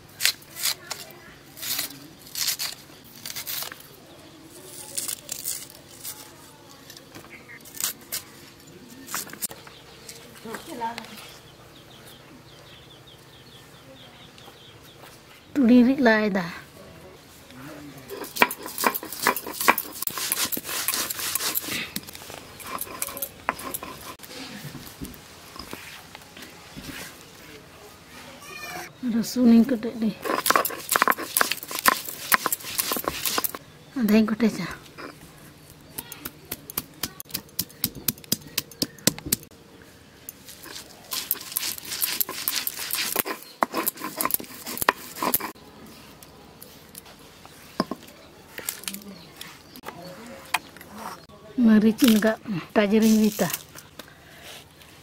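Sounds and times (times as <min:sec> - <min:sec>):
stone grinder clicks: 0:18.1 - 0:24.2, 0:30.2 - 0:33.6, 0:40.7 - 0:45.6
stone grinder rubbing on slab: 0:18.1 - 0:24.2, 0:30.2 - 0:33.6, 0:40.6 - 0:45.6.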